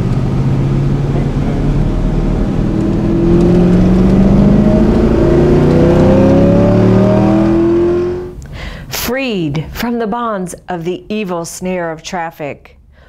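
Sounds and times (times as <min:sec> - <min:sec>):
car engine accelerating: 0:00.0 - 0:08.4.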